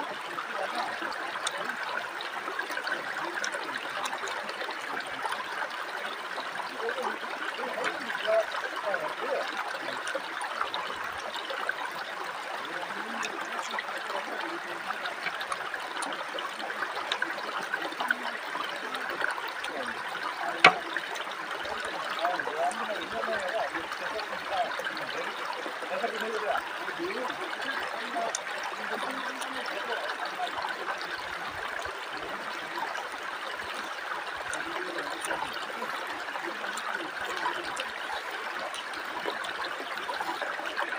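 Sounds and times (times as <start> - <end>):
river water rushing over rocks: 0.0 - 40.9.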